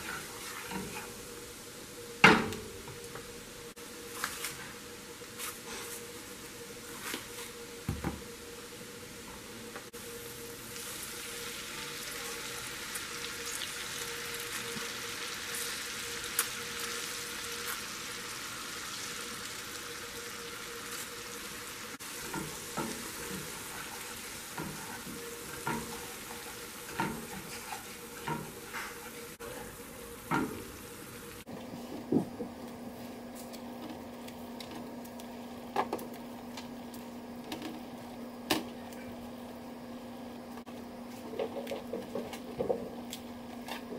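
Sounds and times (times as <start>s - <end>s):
sauce sizzling in a frying pan: 0.0s - 4.1s, 9.9s - 31.5s
steady low hum: 20.2s - 41.4s.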